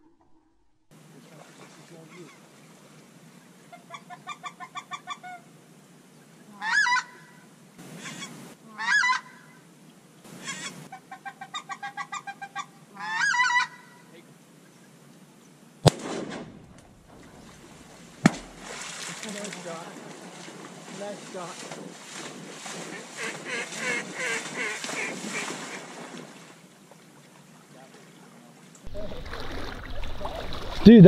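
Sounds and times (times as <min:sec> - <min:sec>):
goose honks: 0:06.5 - 0:07.4, 0:08.0 - 0:09.6, 0:10.4 - 0:14.1, 0:22.9 - 0:25.8
duck quacking: 0:10.4 - 0:14.1, 0:22.9 - 0:25.8
shotgun shots: 0:15.8 - 0:18.7.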